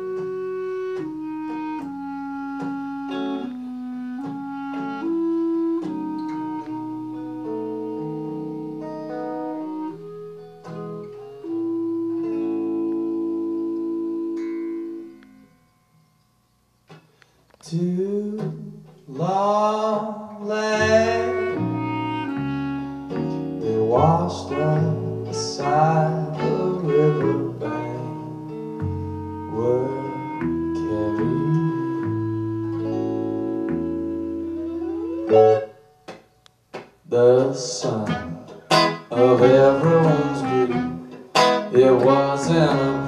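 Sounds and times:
clarinet: 0.0 - 15.7, 16.9 - 36.2, 37.1 - 43.0
guitar: 0.0 - 43.0
person singing: 17.6 - 22.8, 23.5 - 32.8, 37.1 - 43.0
electric bass: 20.8 - 35.7.

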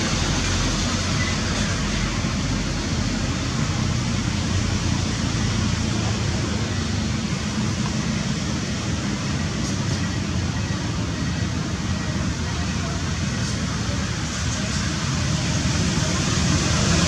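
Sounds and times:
steady rushing background noise: 0.0 - 17.0.

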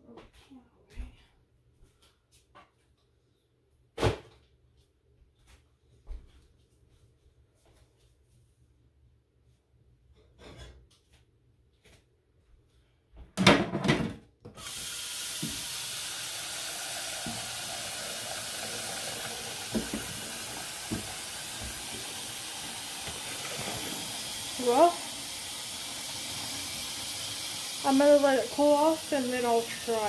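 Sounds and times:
faucet running: 14.6 - 30.0.

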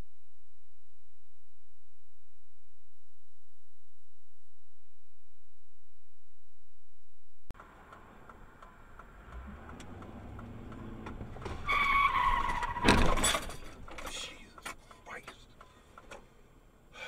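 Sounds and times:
car tyres squealing: 7.6 - 14.0
loud car crash crunch: 9.6 - 14.0.

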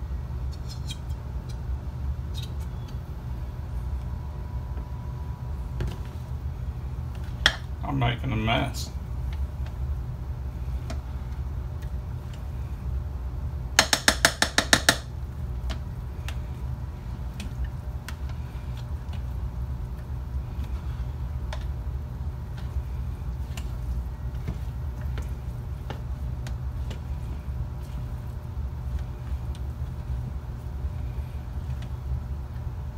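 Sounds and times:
steady low hum: 0.0 - 32.9
utensil scraping food: 22.4 - 32.2.

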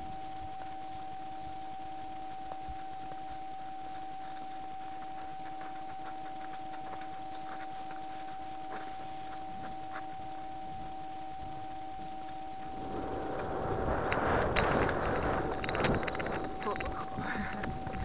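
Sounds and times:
high-pitched electronic whine: 0.0 - 18.0
horse walking through snow: 2.2 - 10.5.

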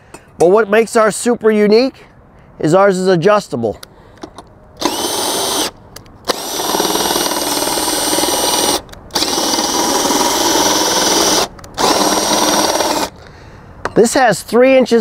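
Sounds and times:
cordless drill turning screw: 4.8 - 13.2.

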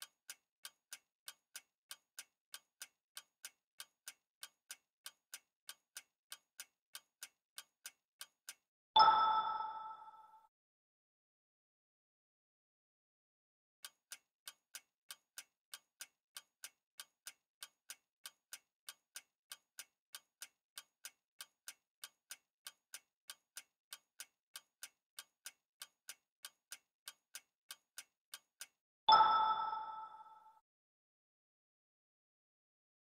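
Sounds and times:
clock ticking: 0.0 - 10.3, 13.8 - 30.4
bright chime: 29.1 - 30.6.

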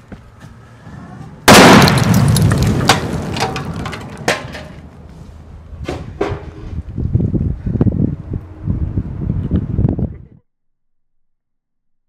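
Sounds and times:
loud explosion blast: 1.5 - 3.8
sharp cracks: 1.5 - 5.1.

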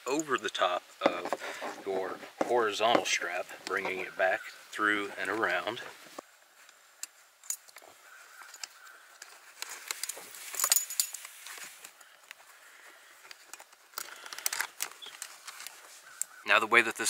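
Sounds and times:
canvas webbing rustling: 1.1 - 16.5
metal buckles clinking on frame: 7.4 - 7.8, 8.4 - 11.7.

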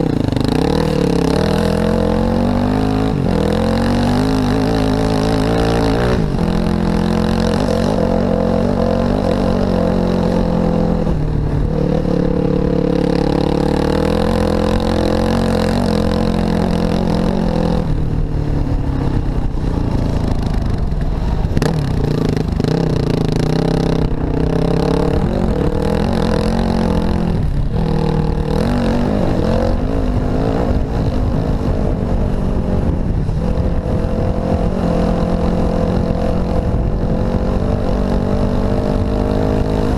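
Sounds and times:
off-road vehicle engine revving: 0.0 - 18.0, 20.3 - 39.9.

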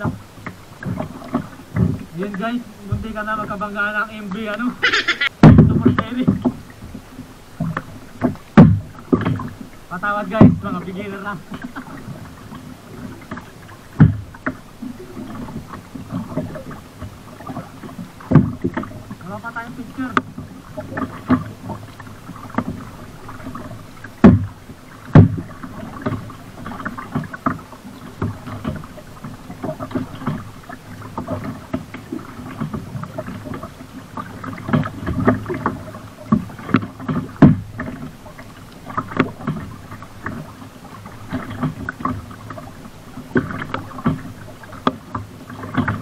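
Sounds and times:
paddle splashing in water: 0.0 - 46.0
water swishing and dripping: 0.0 - 46.0
sharp knocks: 5.4 - 6.5, 24.2 - 24.5.

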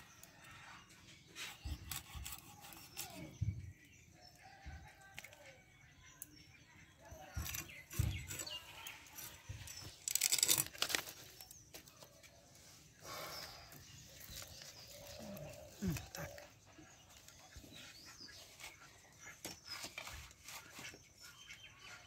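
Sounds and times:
scraping and rustling: 7.4 - 12.3, 18.0 - 21.8.

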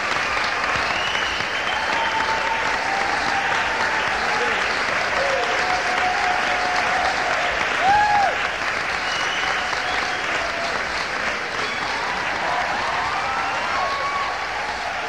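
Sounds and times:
audience applauding and cheering: 0.0 - 15.0
loud shout from crowd: 0.6 - 8.5, 11.4 - 15.0.

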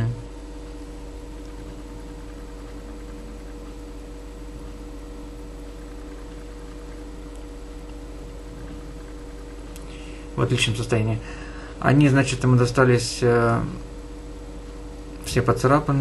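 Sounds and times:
faint steady high tones: 0.0 - 11.2
low electrical hum: 0.0 - 16.0.

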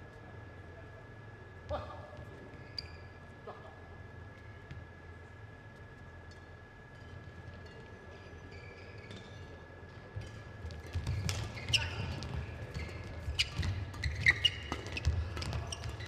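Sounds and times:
shoe squeaks on court: 2.5 - 3.2, 10.7 - 16.0.

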